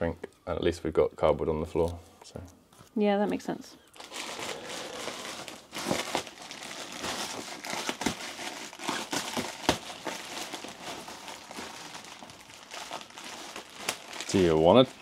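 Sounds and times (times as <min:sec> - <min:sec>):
plastic wrap crinkling: 0:03.8 - 0:15.0.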